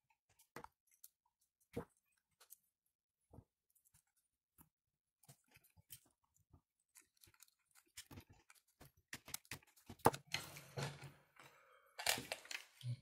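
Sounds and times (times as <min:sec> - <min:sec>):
plastic parts clicking and scraping: 0:05.2 - 0:12.9.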